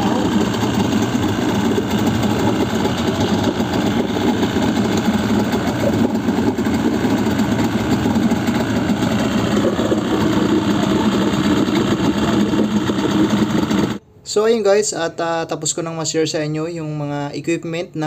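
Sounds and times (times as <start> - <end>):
outboard motor running: 0.0 - 14.0
propeller churning water: 0.0 - 14.0.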